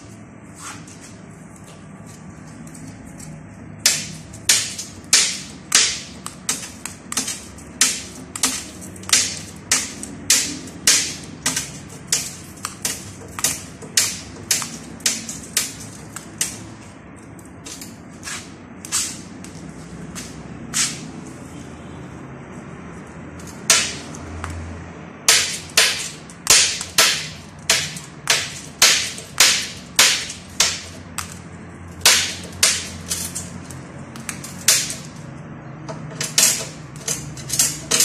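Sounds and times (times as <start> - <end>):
glass clicking and snapping: 3.8 - 18.0, 35.9 - 38.0.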